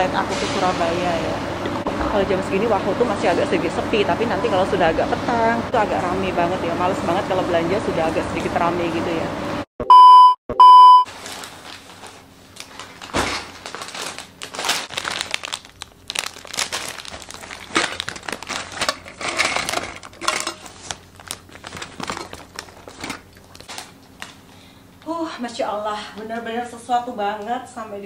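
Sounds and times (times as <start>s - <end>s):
plastic bags crinkling: 11.1s - 24.4s.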